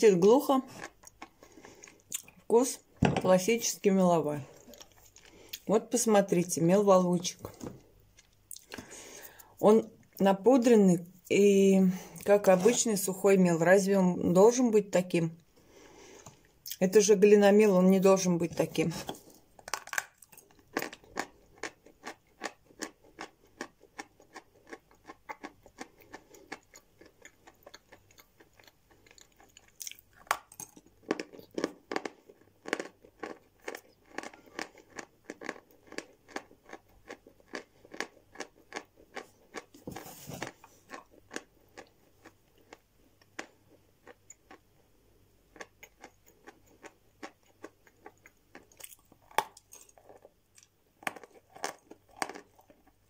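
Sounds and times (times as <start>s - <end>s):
person chewing crunchy chalk: 19.1s - 44.7s, 45.5s - 53.0s.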